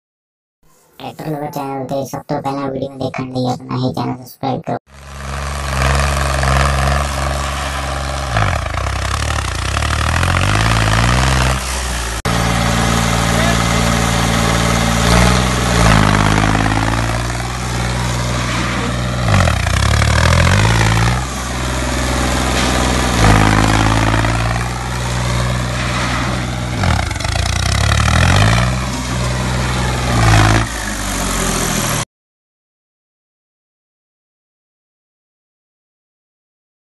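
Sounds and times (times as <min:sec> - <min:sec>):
tractor diesel engine revving: 0:04.9 - 0:32.0.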